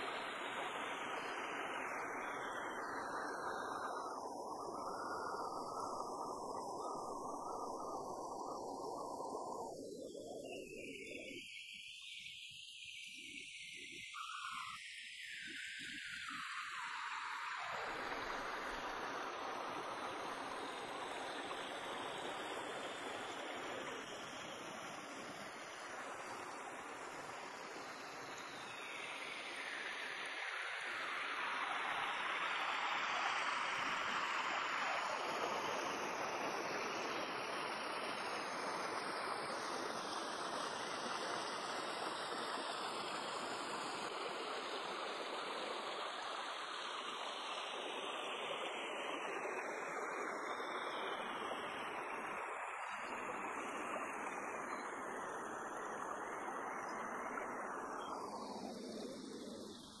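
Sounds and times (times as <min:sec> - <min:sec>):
stream running over rocks: 0:15.7 - 1:00.0.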